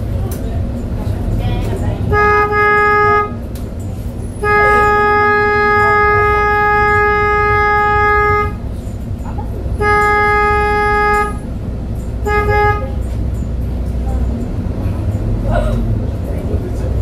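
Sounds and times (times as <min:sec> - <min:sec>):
low rumble of traffic: 0:00.0 - 0:17.0
vehicle horn honking: 0:02.0 - 0:03.5, 0:04.2 - 0:08.8, 0:09.7 - 0:11.6, 0:12.2 - 0:13.1.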